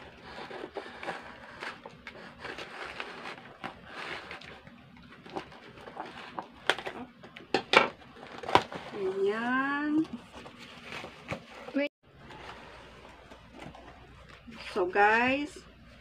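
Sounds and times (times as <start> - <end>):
rustling tape and cardboard: 0.0 - 15.2.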